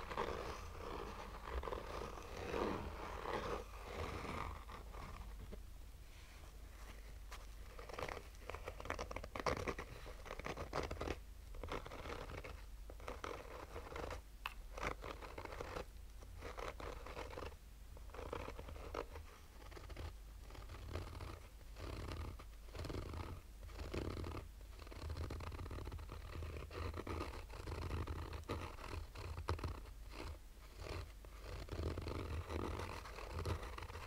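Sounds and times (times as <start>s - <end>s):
fingernail scratching fabric: 0.0s - 5.6s, 6.4s - 34.0s
steady low hum: 0.0s - 16.2s.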